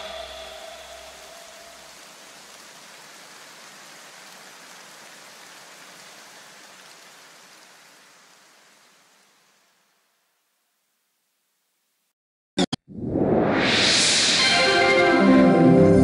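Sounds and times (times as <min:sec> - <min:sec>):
rain-like hiss of noise: 0:00.0 - 0:12.1.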